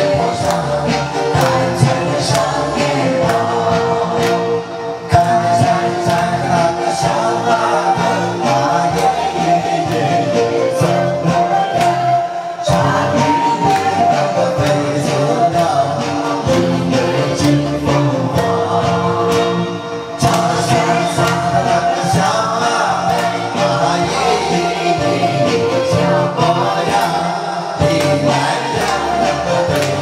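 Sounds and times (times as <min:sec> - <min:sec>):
group singing karaoke: 0:00.0 - 0:30.0
karaoke backing track: 0:00.0 - 0:30.0
man singing into microphone: 0:05.1 - 0:30.0.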